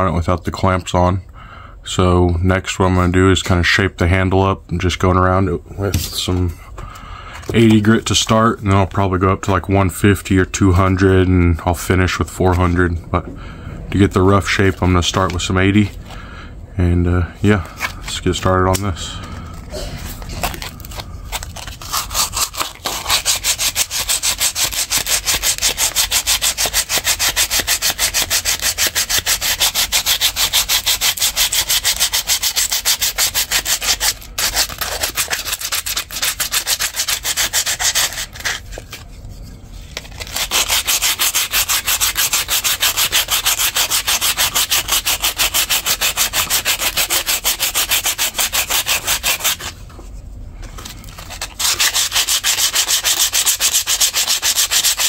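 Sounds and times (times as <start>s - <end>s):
sandpaper rubbing on wood: 21.6s - 38.7s, 40.2s - 49.7s, 51.2s - 55.0s.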